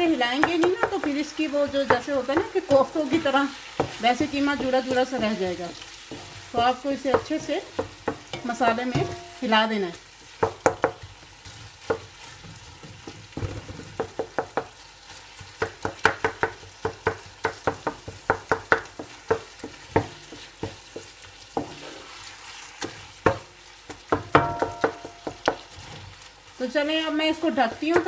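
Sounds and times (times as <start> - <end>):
faint frying sizzle: 0.0 - 28.0
wooden spatula scraping pot: 0.3 - 9.4, 19.0 - 23.4.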